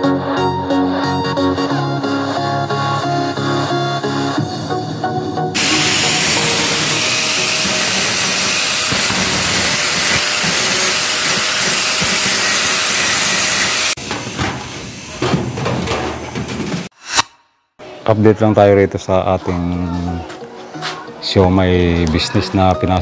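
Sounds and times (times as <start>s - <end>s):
angle grinder cutting metal: 5.6s - 14.1s.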